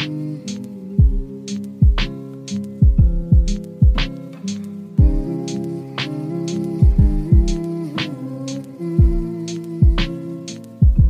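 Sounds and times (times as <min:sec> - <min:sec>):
sharp snare hits: 0:00.0 - 0:00.6, 0:01.5 - 0:02.6, 0:03.4 - 0:04.6
held chords: 0:00.0 - 0:11.0
deep kick drum hits: 0:01.0 - 0:02.1, 0:02.8 - 0:04.1, 0:05.0 - 0:05.3, 0:06.8 - 0:07.6, 0:09.0 - 0:10.1.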